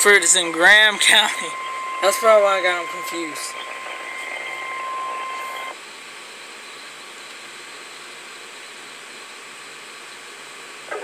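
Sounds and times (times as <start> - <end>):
steady alarm beep: 0.0 - 5.8
broadcast hiss: 0.0 - 9.4.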